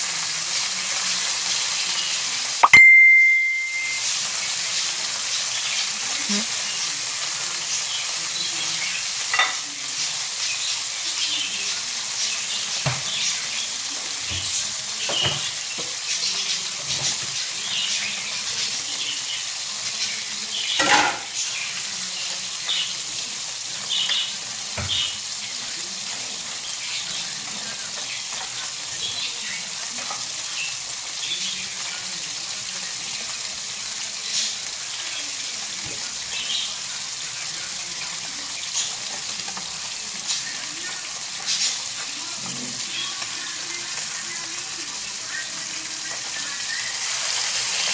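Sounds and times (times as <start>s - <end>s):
oil sizzling in a frying pan: 0.0s - 47.9s
utensil clanking on pan: 9.3s - 9.6s, 20.8s - 21.4s.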